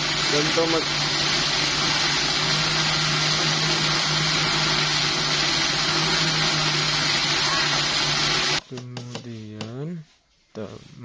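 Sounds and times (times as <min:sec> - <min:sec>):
electric blender running: 0:00.0 - 0:08.6.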